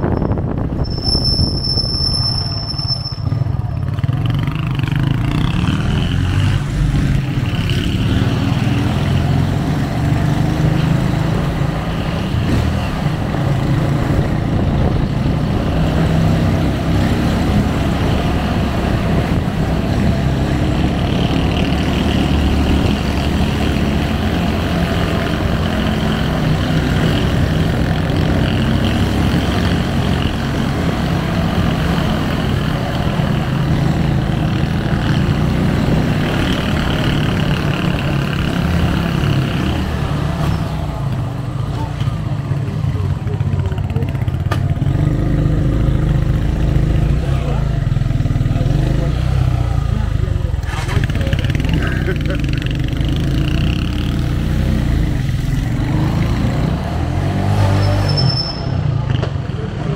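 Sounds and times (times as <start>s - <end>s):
road and wind noise: 0.0s - 59.9s
high squeal: 0.1s - 3.6s, 57.7s - 58.9s
motorcycle engine running: 0.2s - 57.2s.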